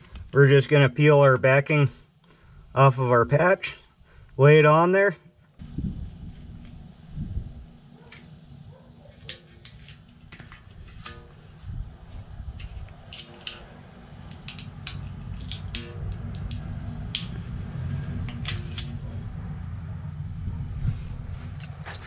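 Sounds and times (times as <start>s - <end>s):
low rumble: 5.6s - 8.8s, 13.7s - 22.0s
crackles and clicks of tire patch: 12.5s - 19.0s.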